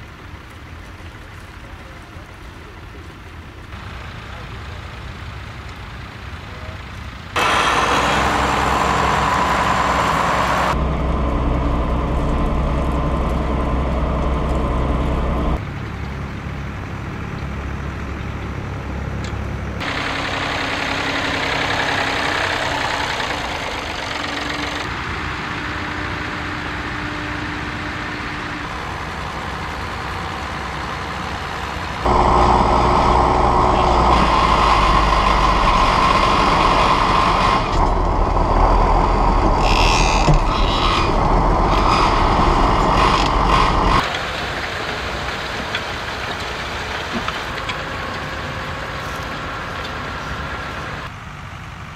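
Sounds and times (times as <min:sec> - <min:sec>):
tractor engines running: 0:00.0 - 0:51.9.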